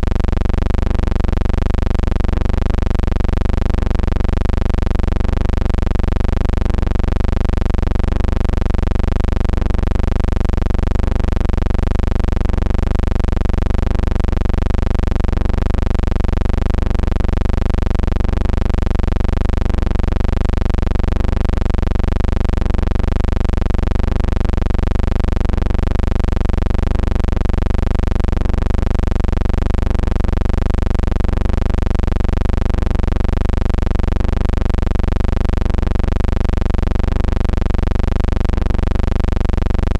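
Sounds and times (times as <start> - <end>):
loud low hum with hiss: 0.0 - 3.1.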